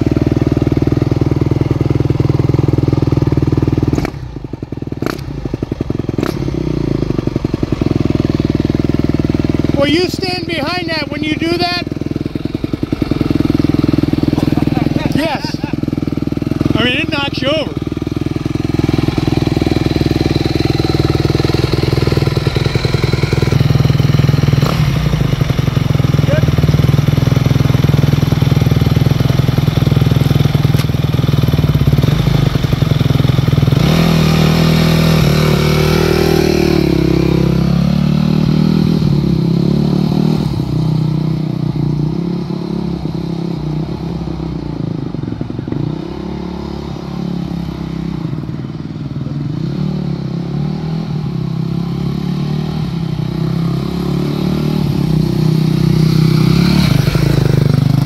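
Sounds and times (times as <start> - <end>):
dirt bike engine revving: 6.1 - 27.4, 31.4 - 44.4, 49.5 - 58.0.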